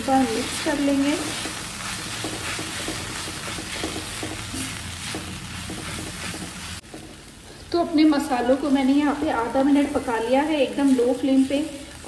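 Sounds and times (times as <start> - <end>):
spices sizzling in oil: 0.0 - 12.0
spatula scraping pan: 0.2 - 7.2.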